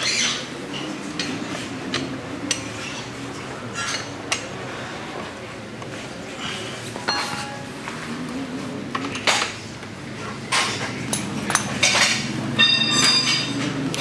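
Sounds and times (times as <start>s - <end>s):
metal tools clinking: 7.0s - 7.9s, 10.5s - 13.8s.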